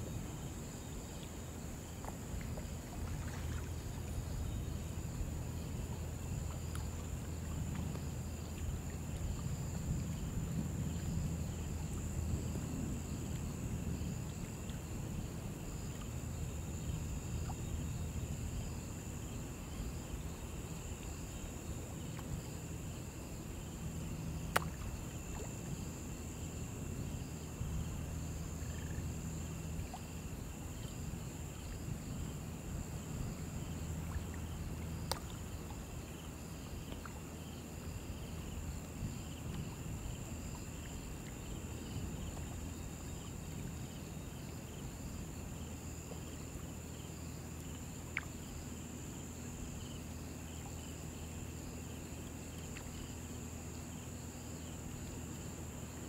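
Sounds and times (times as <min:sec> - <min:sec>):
high chirring of insects: 0:15.8 - 0:39.8.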